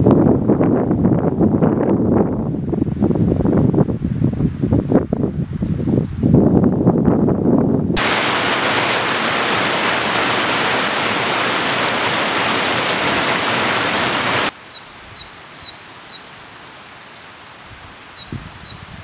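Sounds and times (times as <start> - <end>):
stream rushing over rocks: 8.0 - 14.5.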